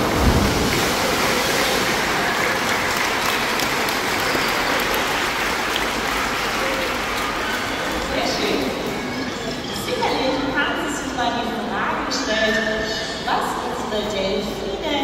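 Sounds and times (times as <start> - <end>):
dolphins splashing into pool: 0.0 - 8.9
audience applause: 0.0 - 9.2.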